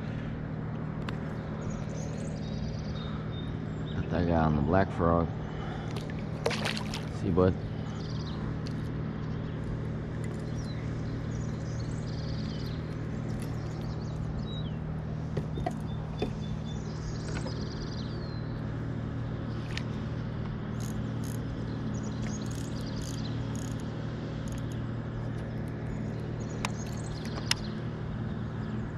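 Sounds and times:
steady low hum: 0.0 - 28.9
small birds chirping: 1.1 - 28.9
light clicks: 26.6 - 27.7.

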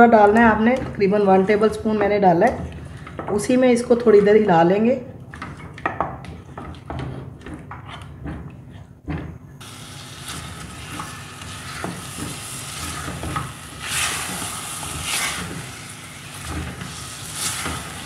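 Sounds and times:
spatula scraping and knocking pot: 5.3 - 9.4, 10.2 - 18.0
chicken sizzling in oil: 9.6 - 18.0.

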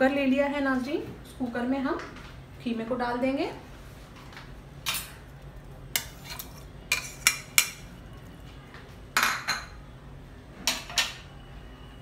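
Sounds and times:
spoon clinking and scraping metal: 6.0 - 7.9.

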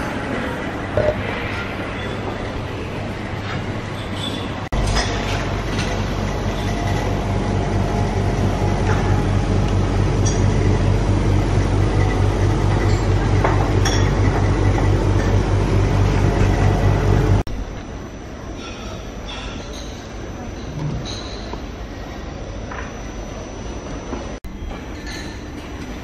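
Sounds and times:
dishes clinking: 3.5 - 7.2, 10.2 - 10.7, 12.8 - 14.5, 24.8 - 25.9
low throbbing rumble: 4.7 - 17.5.

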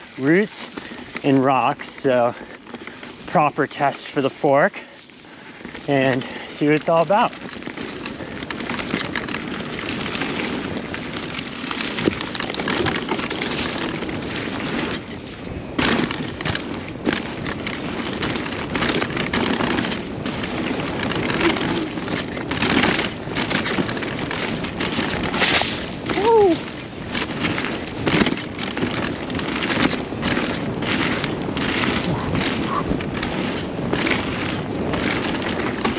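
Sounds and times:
bike knocking and rattling: 0.0 - 35.9
bike tyres on trail: 0.0 - 35.9
wind on microphone: 7.1 - 35.9.

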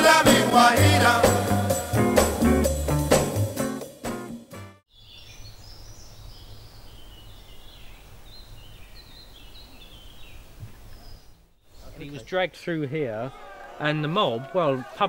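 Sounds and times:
music track: 0.0 - 4.8
birds chirping and singing: 4.9 - 12.1.

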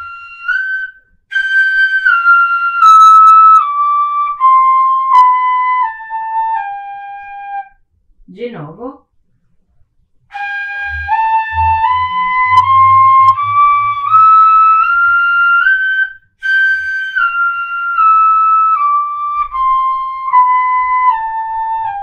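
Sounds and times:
fife playing a scale: 10.3 - 22.0.

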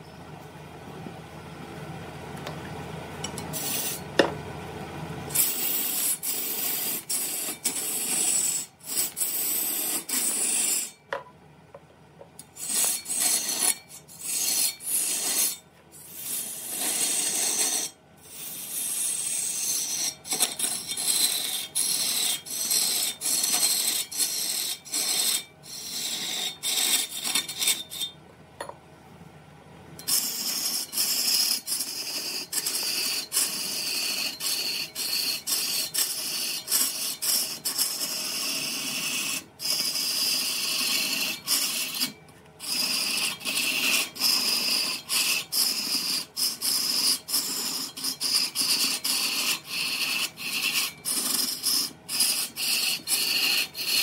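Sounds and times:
file scraping strokes: 3.5 - 4.0, 5.3 - 11.0, 12.5 - 28.2, 30.0 - 54.0.

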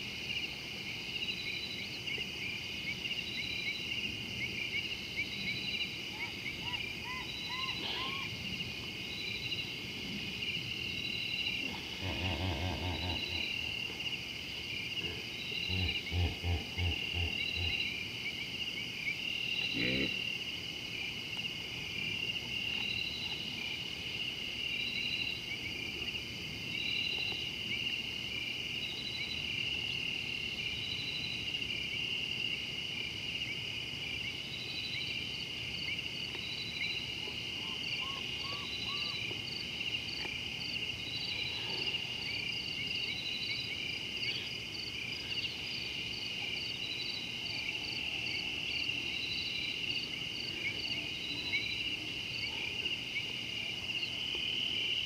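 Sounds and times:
higher pulsed insect call: 0.0 - 55.0
insects shrill trill: 2.9 - 9.8, 10.4 - 20.4, 34.5 - 55.0.

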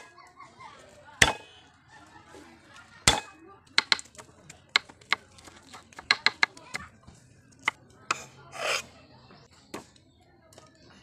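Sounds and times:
cleaver knocking on chopping block: 3.1 - 4.1, 6.1 - 6.5
blade scraping across board: 8.1 - 8.9.

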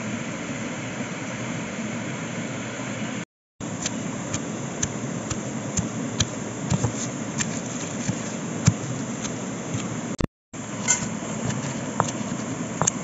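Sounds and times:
stone pestle pounding in mortar: 4.3 - 9.9.

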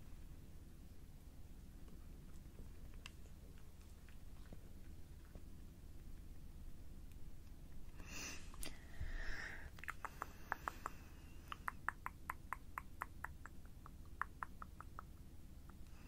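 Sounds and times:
breathy hiss: 8.0 - 11.6
wet tongue and lip clicks: 9.7 - 16.0.

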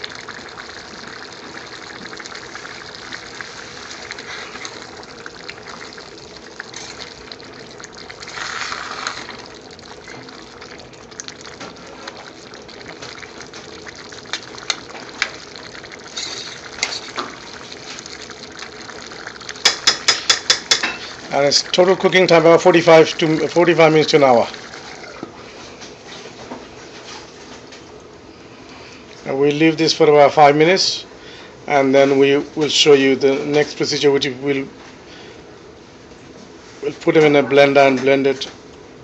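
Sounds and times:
thick gravy simmering and bubbling: 0.0 - 28.2.

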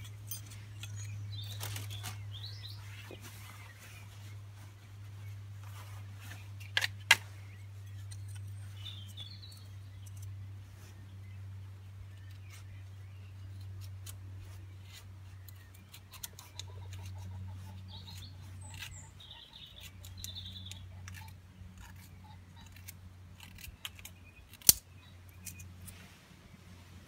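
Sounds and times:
knife scraping wood shavings: 14.4 - 24.8.

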